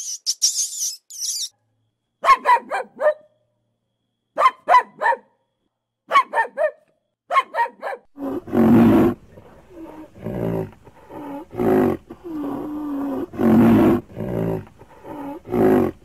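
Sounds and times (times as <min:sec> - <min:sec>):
high chirping: 0:00.0 - 0:01.5
puppy barking: 0:02.2 - 0:03.4, 0:04.4 - 0:05.4, 0:06.1 - 0:08.1.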